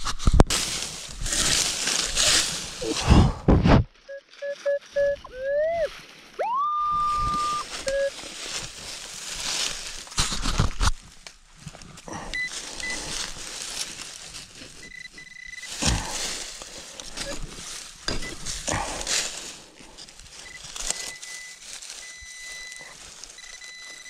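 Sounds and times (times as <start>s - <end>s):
dry stalks crunching underfoot: 0.0s - 3.1s, 3.7s - 24.0s
metal detector beeps and tones: 4.0s - 8.2s, 12.3s - 13.1s, 14.8s - 16.1s, 17.0s - 17.5s, 18.1s - 18.5s, 20.3s - 24.0s.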